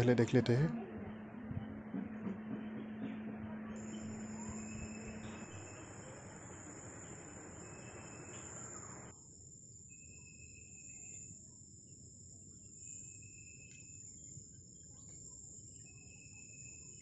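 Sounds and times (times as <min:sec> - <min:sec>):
crickets trilling: 0:03.7 - 0:17.0.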